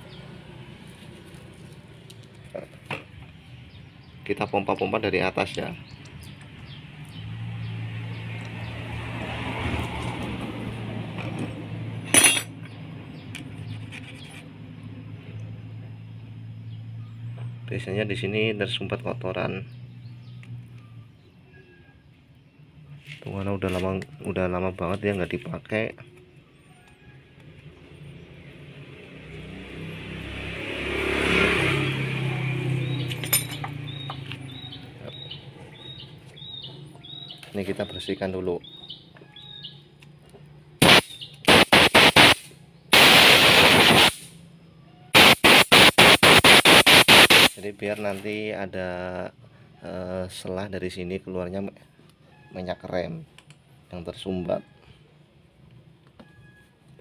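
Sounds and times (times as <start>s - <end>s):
vehicle engine passing by: 0.0s - 2.8s, 5.6s - 21.2s, 27.4s - 38.6s
sharp metallic clink: 12.0s - 12.8s, 33.0s - 34.1s
bird chirping: 32.7s - 40.2s, 40.8s - 43.3s.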